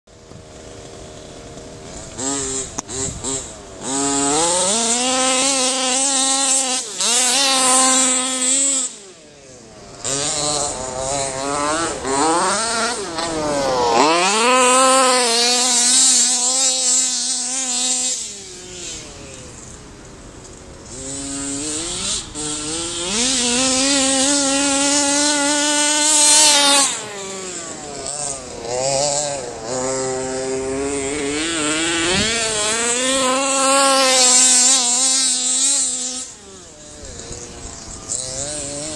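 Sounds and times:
two-stroke engine revving: 0:00.1 - 0:38.9.

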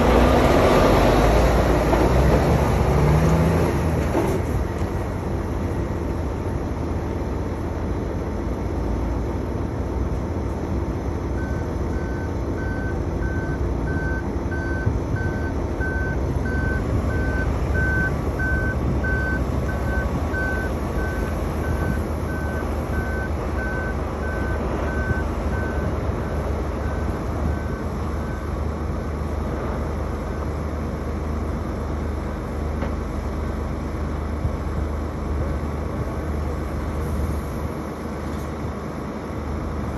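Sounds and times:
diesel machinery rumbling: 0:00.0 - 0:39.9
reversing alarm beeping: 0:11.4 - 0:28.6.

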